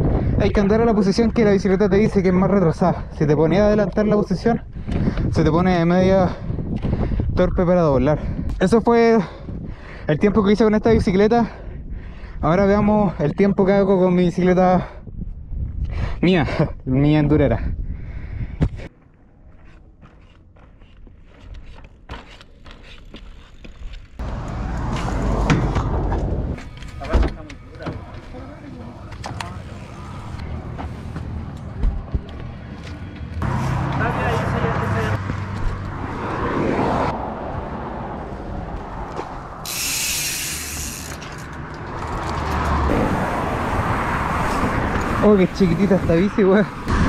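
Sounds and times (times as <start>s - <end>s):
bike being handled: 19.5s - 34.5s, 38.7s - 42.9s
high hissing buzz: 39.6s - 41.2s.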